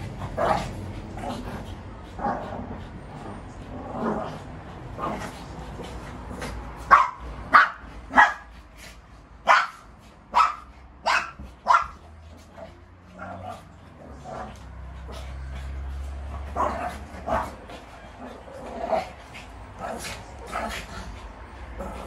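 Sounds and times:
small dogs barking: 6.7s - 8.6s, 9.4s - 22.0s.

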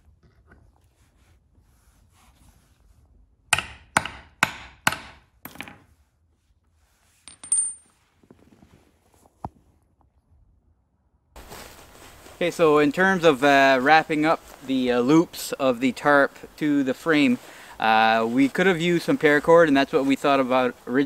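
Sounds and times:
hammer striking metal punch: 3.5s - 5.7s.

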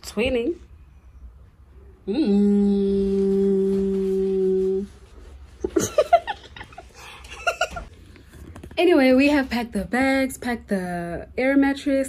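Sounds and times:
short vocal sounds: 2.0s - 4.9s.

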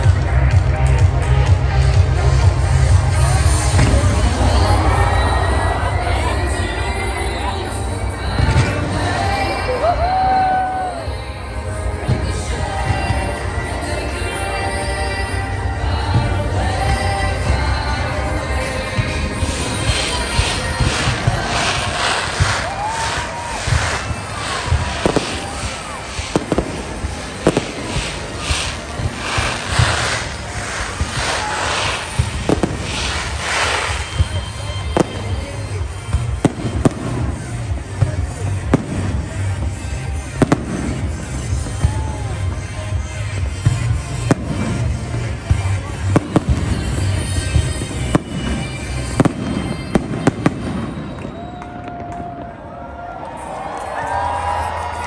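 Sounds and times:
fireworks crackling hiss: 0.0s - 52.1s
fireworks booming: 2.4s - 6.2s, 16.2s - 52.5s
whistling fireworks: 3.0s - 55.0s.

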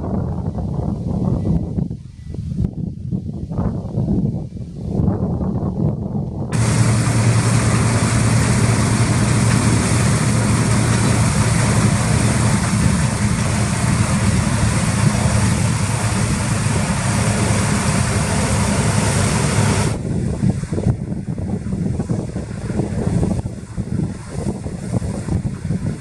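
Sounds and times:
combine harvester engine drone: 6.0s - 26.0s.

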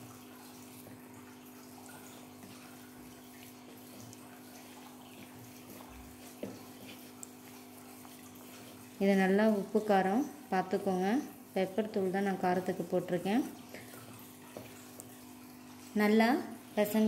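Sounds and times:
hand squishing mashed potato: 3.4s - 9.6s.

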